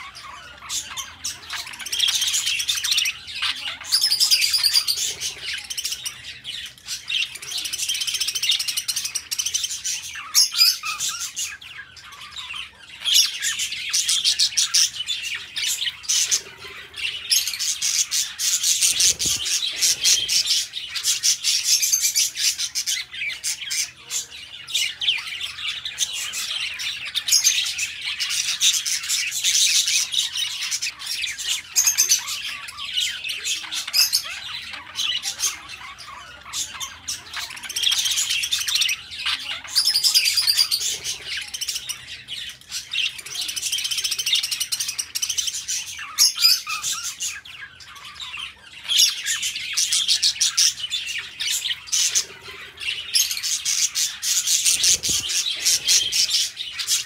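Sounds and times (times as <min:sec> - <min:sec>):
budgerigars chirping and chattering: 0:00.0 - 0:57.0.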